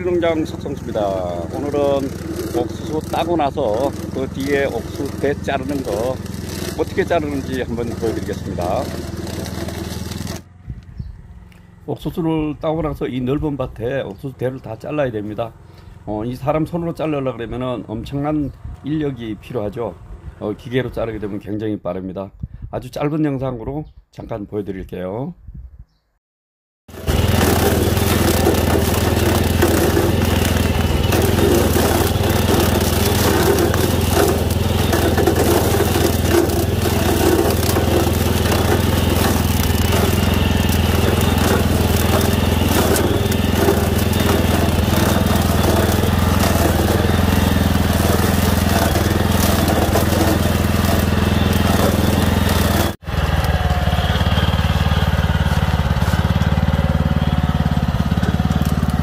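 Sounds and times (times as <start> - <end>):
blade chopping corn stalks: 0.0 - 10.5, 26.9 - 59.0
tiller engine running: 0.0 - 11.9, 14.1 - 16.5, 26.9 - 59.0.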